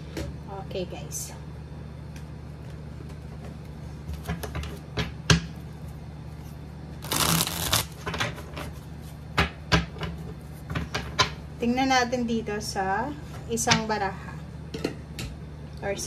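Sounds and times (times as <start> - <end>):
cards riffling together: 7.0 - 8.0.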